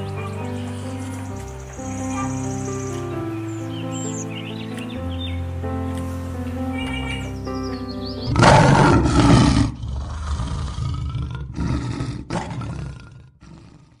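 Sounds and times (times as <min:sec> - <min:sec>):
background music: 0:00.0 - 0:09.8
loud roaring sound effect: 0:08.3 - 0:13.9.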